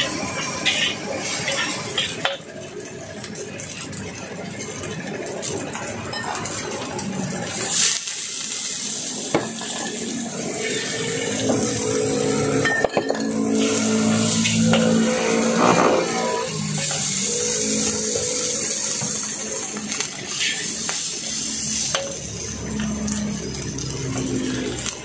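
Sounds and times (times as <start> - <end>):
metal spatula scraping a wok: 0.0 - 2.4, 9.5 - 19.1
frying sizzle: 0.0 - 25.0.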